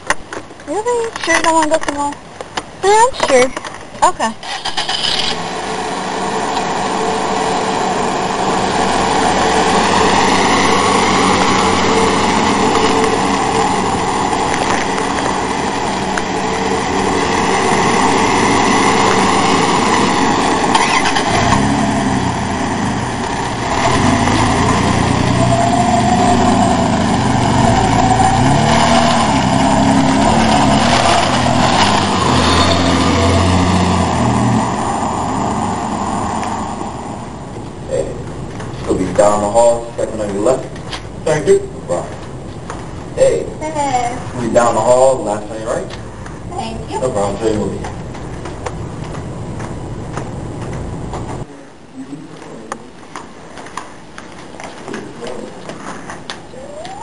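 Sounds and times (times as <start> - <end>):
car engine and road noise: 0.0 - 57.0
deep engine sound: 5.0 - 42.4.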